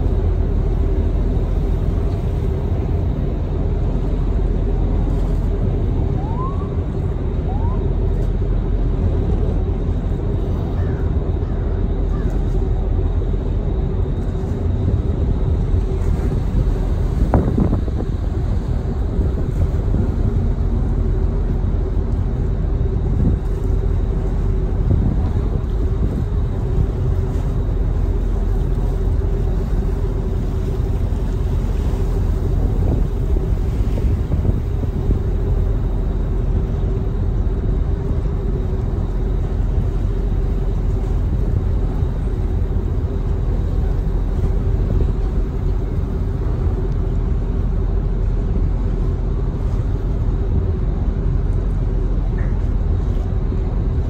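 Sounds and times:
ferry engines droning: 0.0s - 54.0s.

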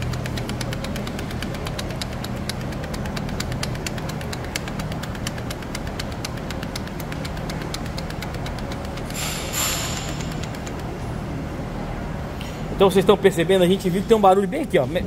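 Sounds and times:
rapid metallic ticking: 0.0s - 11.1s.

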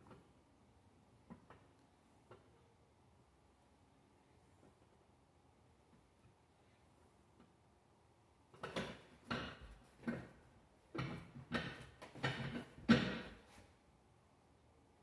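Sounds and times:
metal exercise chair creaking: 8.6s - 13.6s.

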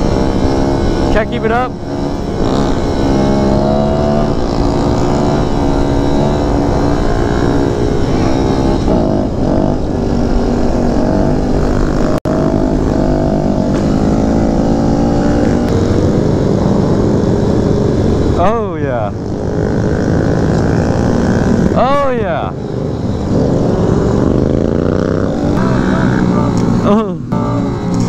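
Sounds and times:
motorcycle engine revving: 0.0s - 28.0s
wind noise: 0.0s - 28.0s.

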